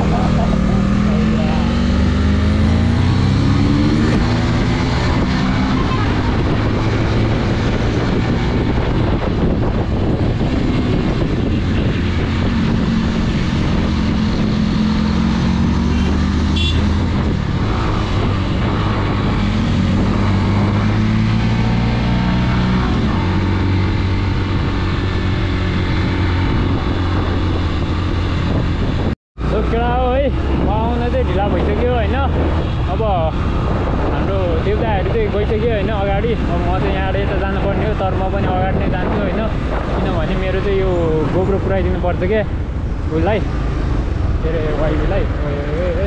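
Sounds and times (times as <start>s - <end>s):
wind and road noise: 0.0s - 46.0s
motorcycle engine running: 15.9s - 17.4s.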